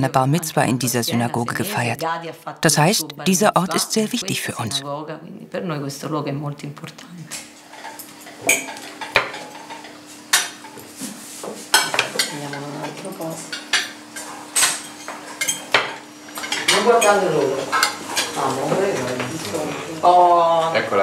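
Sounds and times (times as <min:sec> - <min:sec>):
dishes and cutlery clinking: 0:07.3 - 0:19.5.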